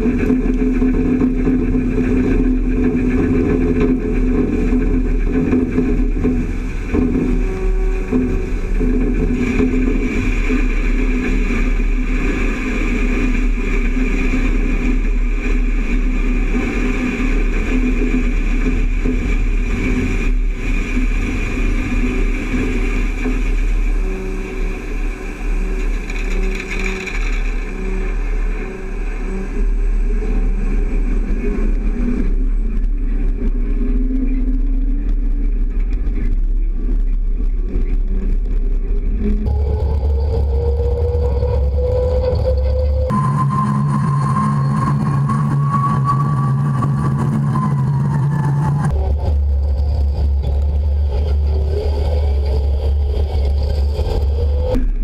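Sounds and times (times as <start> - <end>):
farm machinery engine drone: 0.0 - 55.0
grain pouring hiss: 20.7 - 29.6.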